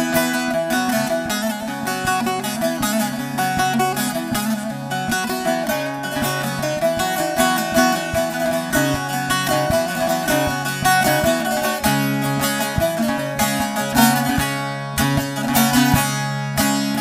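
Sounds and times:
long-necked lute strumming: 0.0s - 17.0s.

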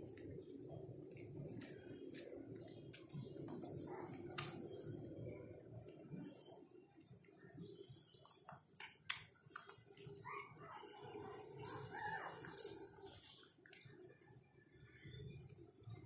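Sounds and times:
puppies suckling wet clicks: 7.2s - 14.2s
puppies squeaky calls: 10.2s - 12.6s.

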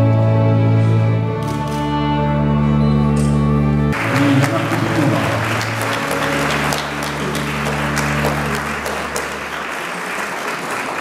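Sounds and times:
music of low held notes: 0.0s - 9.5s
audience applauding: 3.9s - 11.0s.

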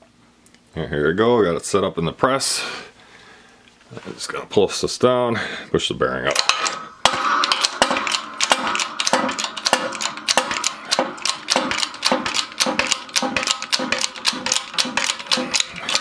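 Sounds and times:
shop press ratcheting clicks: 6.4s - 16.0s.

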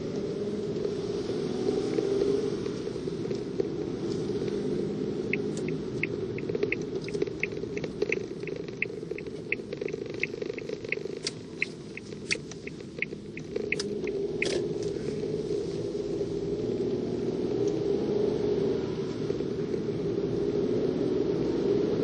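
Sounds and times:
car engine and tyres hum: 0.0s - 22.0s
turn signal clicking: 1.9s - 15.0s.

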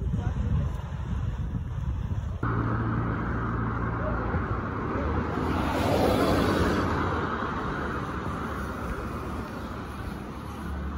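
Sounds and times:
traffic engine hum: 2.0s - 10.9s
car passing: 2.4s - 10.9s.

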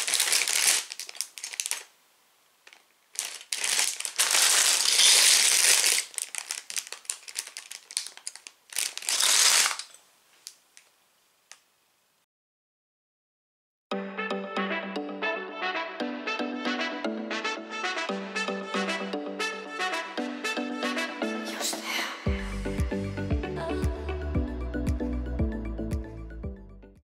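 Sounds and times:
plastic bags crinkling: 0.0s - 2.0s, 2.6s - 10.9s.

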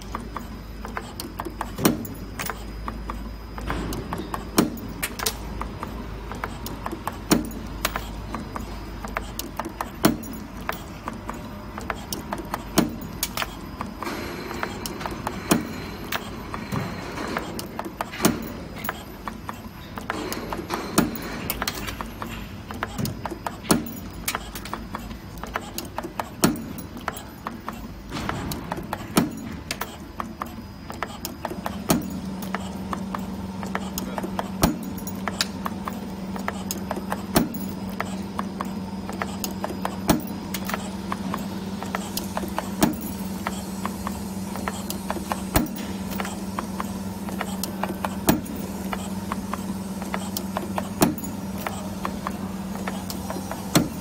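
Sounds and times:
spring forming machine clicking: 0.0s - 54.0s
steady low hum: 0.0s - 54.0s
loud machine knock: 28.0s - 29.7s.

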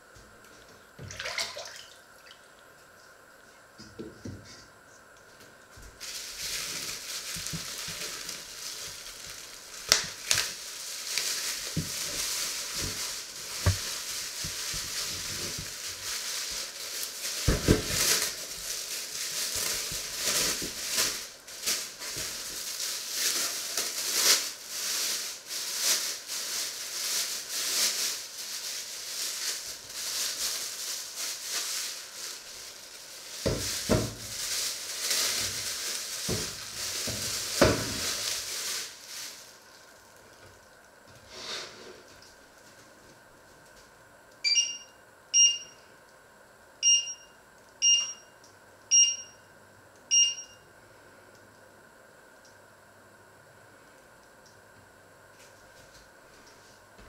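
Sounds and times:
hot pan sizzling: 6.0s - 39.7s.

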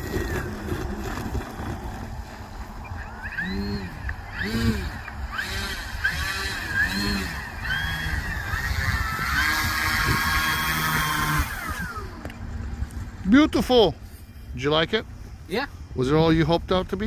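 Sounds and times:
model airplane motor whining: 0.0s - 13.0s
wind rumble on microphone: 0.0s - 13.2s.

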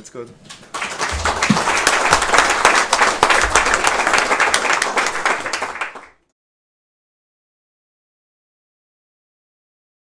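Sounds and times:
audience clapping: 0.6s - 6.3s.

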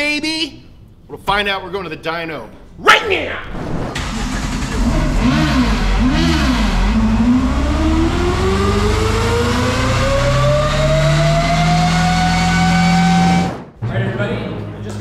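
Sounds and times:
car engine revving: 3.9s - 13.8s.

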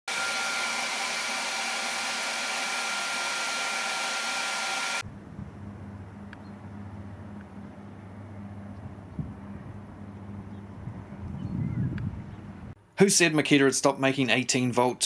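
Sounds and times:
heat gun blowing with whine: 0.1s - 5.0s
low steady hum: 5.0s - 13.0s.

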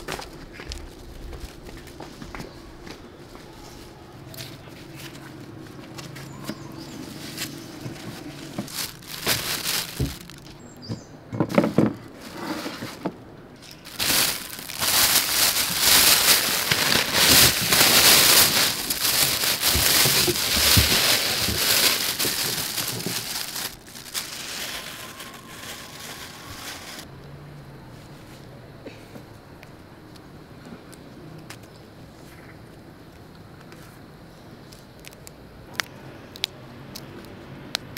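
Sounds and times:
plastic bag crinkling: 6.8s - 10.6s, 12.7s - 27.1s.

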